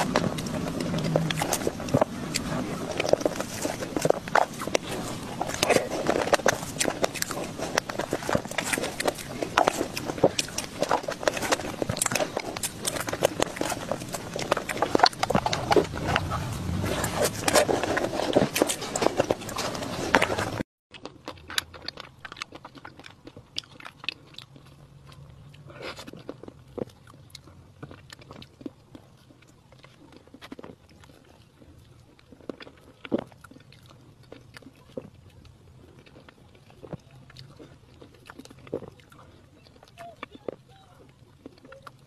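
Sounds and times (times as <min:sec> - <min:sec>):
wet chewing and lip smacks: 0:00.0 - 0:42.0.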